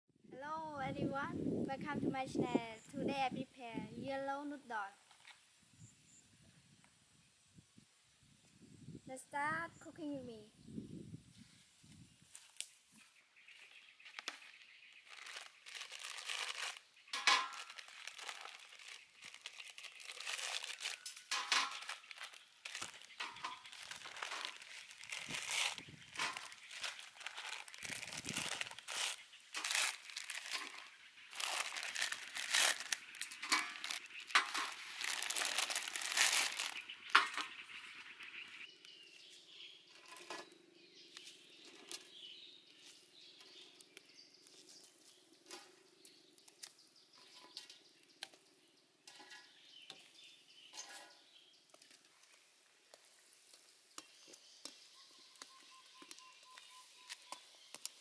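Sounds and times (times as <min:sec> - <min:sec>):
plastic wrappers crinkling and tearing: 0:14.1 - 0:37.5, 0:53.5 - 0:58.0.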